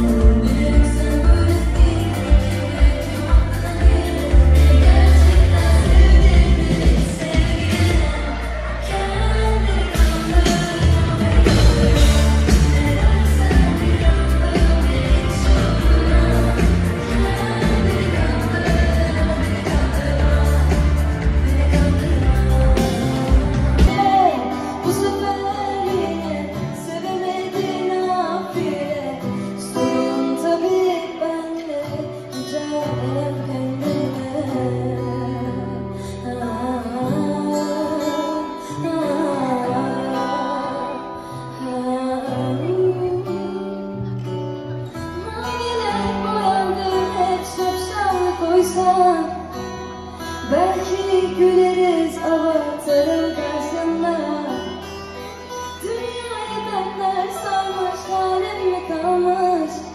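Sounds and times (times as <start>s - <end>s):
steady bass line: 0.0s - 24.0s
acoustic guitar: 0.0s - 59.9s
woman singing: 0.0s - 59.9s.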